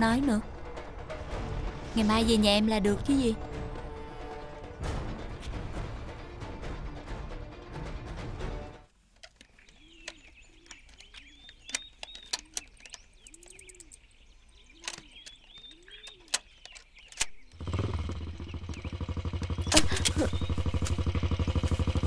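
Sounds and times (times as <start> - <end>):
sharp ticks: 9.2 - 14.0, 14.8 - 20.0
birds chirping: 9.2 - 22.0
motorbike engine running: 17.5 - 22.0.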